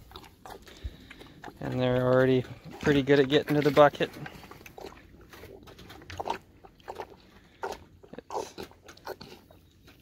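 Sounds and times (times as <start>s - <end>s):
calf slurping milk from bucket: 0.0s - 10.0s.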